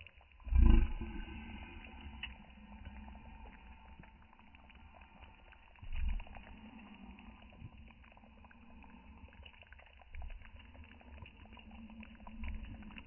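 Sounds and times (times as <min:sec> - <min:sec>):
low rumble: 0:00.0 - 0:09.4
campfire crackling and popping: 0:00.0 - 0:13.0
stew simmering in a pot: 0:00.0 - 0:13.0.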